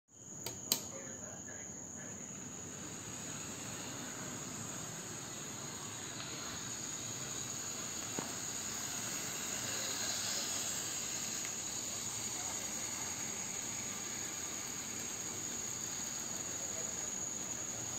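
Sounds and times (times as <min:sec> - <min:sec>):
click: 0:00.4 - 0:01.0
model train running: 0:00.9 - 0:17.9.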